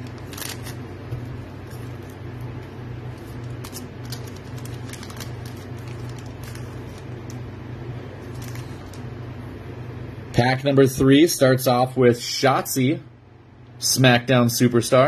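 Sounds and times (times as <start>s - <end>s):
foil wrapper crinkling and tearing: 0.0s - 0.8s, 1.6s - 7.4s, 8.2s - 9.1s
steady low hum: 0.0s - 15.0s.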